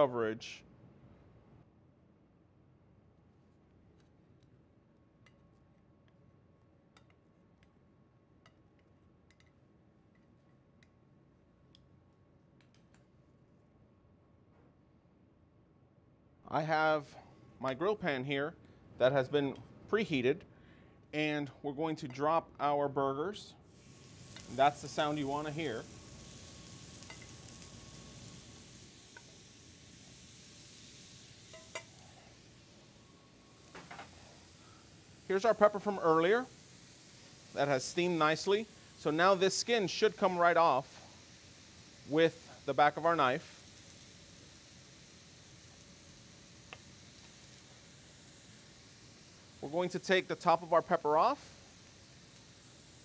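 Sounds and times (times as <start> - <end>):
small clicks of kitchen utensils: 5.2 - 6.2, 6.9 - 7.8, 8.4 - 11.0, 12.6 - 13.1
burger patties sizzling on grill pan: 23.7 - 53.0.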